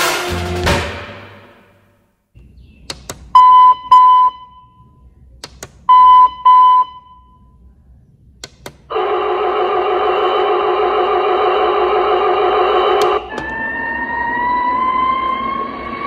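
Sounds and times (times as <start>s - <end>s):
stacked electronic tones: 3.3s - 4.9s, 5.8s - 7.4s
push buttons clicking: 5.4s - 6.9s, 8.4s - 8.9s.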